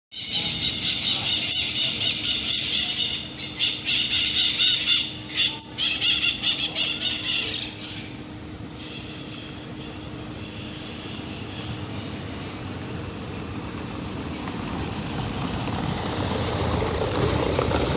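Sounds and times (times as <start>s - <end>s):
marmosets chirping and trilling: 0.1s - 12.7s.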